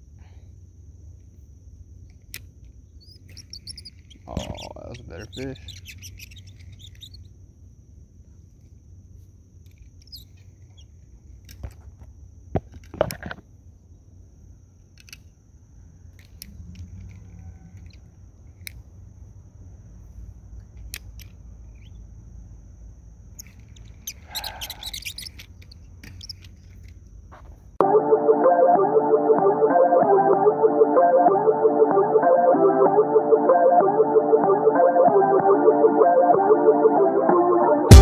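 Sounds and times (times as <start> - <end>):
high-pitched whine: 27.8 - 38.0.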